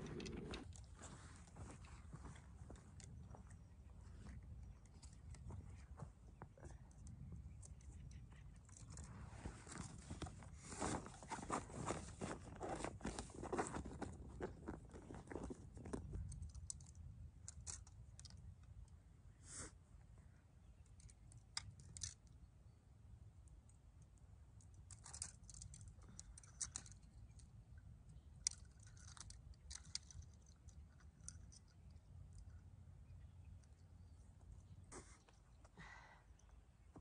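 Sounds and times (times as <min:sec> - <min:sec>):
low steady rumble: 0:00.0 - 0:12.4
fishing gear clicks and rustles: 0:00.0 - 0:18.9, 0:20.8 - 0:22.4, 0:24.6 - 0:32.6.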